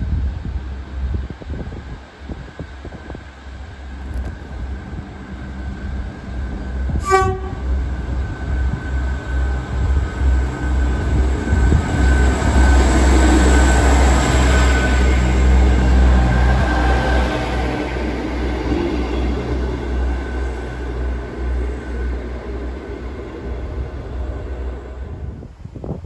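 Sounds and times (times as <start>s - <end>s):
train wheel noise: 0.0s - 26.0s
train horn toot: 6.9s - 7.8s.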